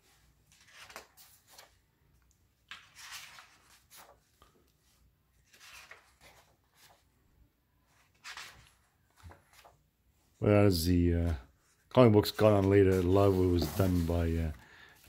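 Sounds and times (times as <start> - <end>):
book pages turning: 0.1 - 1.9, 2.6 - 7.1, 7.9 - 9.8, 11.7 - 14.5.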